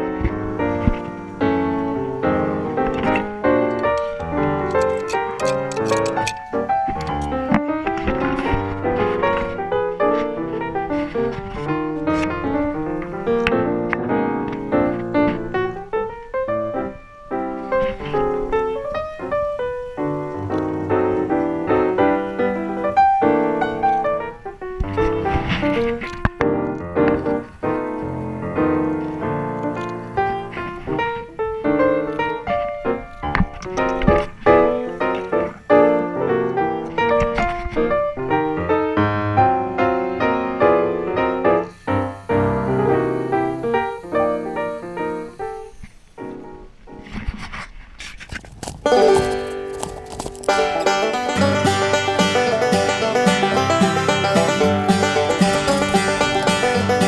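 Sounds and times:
piano music: 0:00.0 - 0:47.0, 0:48.9 - 0:57.0.

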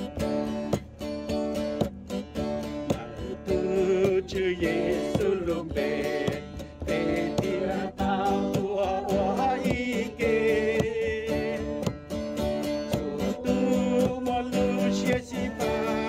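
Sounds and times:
strummed acoustic guitar: 0:00.0 - 0:16.0
person singing worship song: 0:03.0 - 0:12.0, 0:12.7 - 0:16.0.

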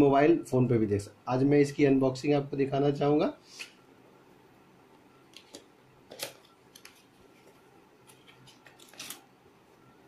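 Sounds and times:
packaging rustle: 0:05.5 - 0:09.3.

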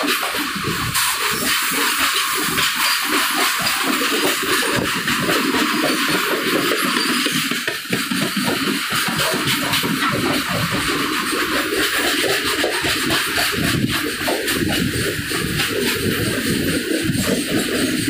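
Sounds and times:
train wheels on rails: 0:00.0 - 0:18.0
rush of air: 0:09.5 - 0:18.0.

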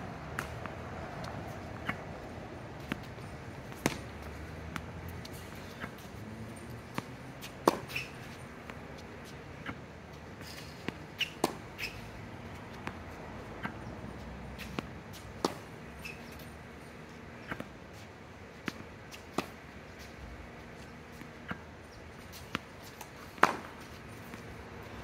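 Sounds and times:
tennis balls bouncing: 0:00.2 - 0:17.8, 0:18.5 - 0:25.0
racket striking tennis balls: 0:00.3 - 0:06.2, 0:06.9 - 0:09.8, 0:10.4 - 0:13.0, 0:13.6 - 0:13.9, 0:14.6 - 0:16.5, 0:18.6 - 0:19.6, 0:22.2 - 0:24.6.

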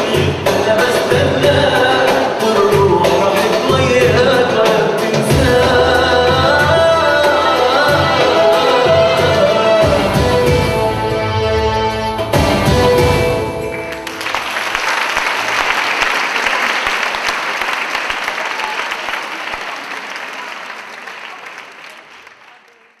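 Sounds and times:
belly dance music: 0:00.0 - 0:16.0
audience applauding: 0:13.7 - 0:23.0.

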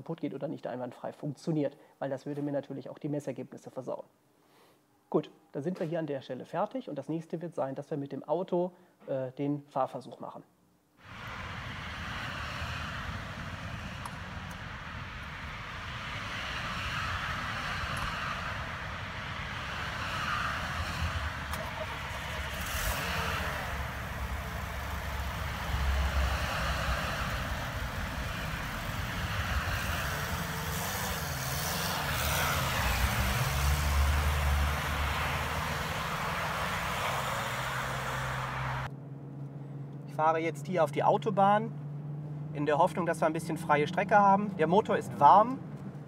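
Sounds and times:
car engine revving: 0:11.0 - 0:39.5.

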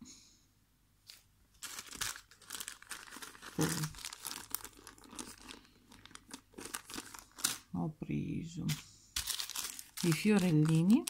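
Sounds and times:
plastic bag crinkling: 0:01.6 - 0:07.8, 0:09.2 - 0:11.0.

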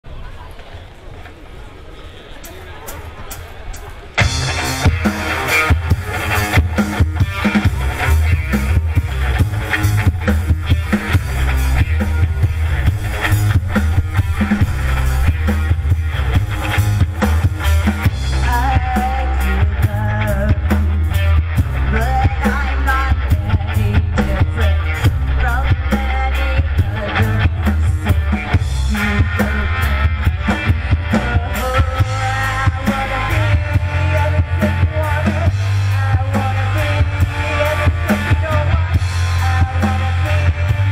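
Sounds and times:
drum kit beat: 0:02.9 - 0:40.9
bass: 0:03.7 - 0:40.9
electric guitar: 0:04.2 - 0:40.9.

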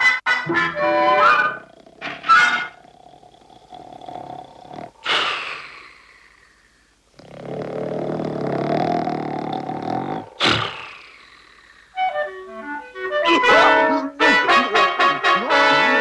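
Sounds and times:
cartoon snoring: 0:01.0 - 0:12.1
sharp snort: 0:01.2 - 0:12.0.

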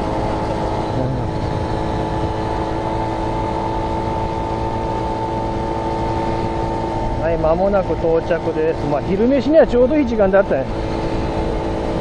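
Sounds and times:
small motorcycle engine cruising: 0:00.0 - 0:12.0.

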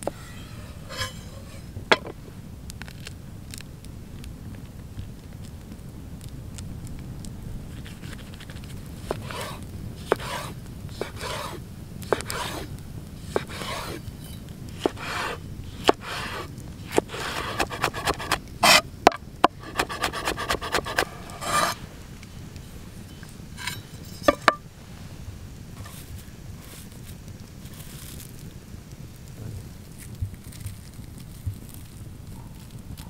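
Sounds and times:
knife scraping and rubbing: 0:00.0 - 0:02.1, 0:07.8 - 0:21.9, 0:23.1 - 0:24.6, 0:25.8 - 0:26.9
knife chopping: 0:09.0 - 0:12.7, 0:13.3 - 0:14.0, 0:14.8 - 0:21.8.

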